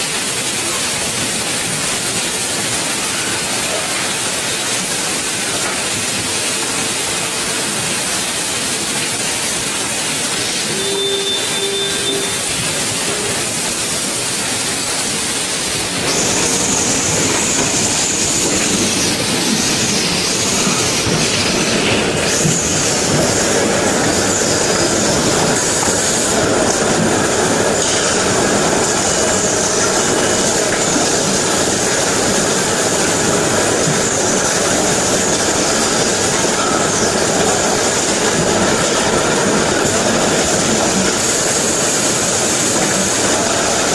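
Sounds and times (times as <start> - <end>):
production-line machinery running: 0.0 - 43.9
short tone: 10.6 - 13.3.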